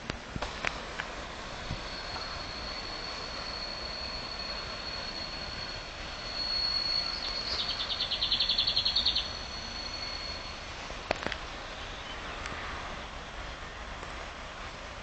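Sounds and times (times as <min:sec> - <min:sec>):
hiss: 0:00.4 - 0:11.1
train wheels squealing: 0:01.4 - 0:10.8.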